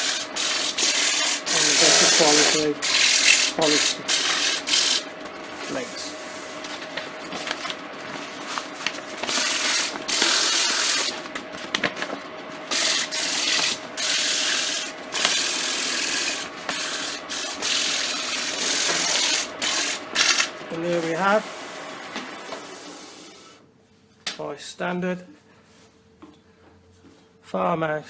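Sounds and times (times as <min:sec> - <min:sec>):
sandpaper rasping on turning wood: 0:00.0 - 0:05.1, 0:09.3 - 0:11.2, 0:12.7 - 0:21.5
lathe humming: 0:00.0 - 0:11.4, 0:12.3 - 0:23.5.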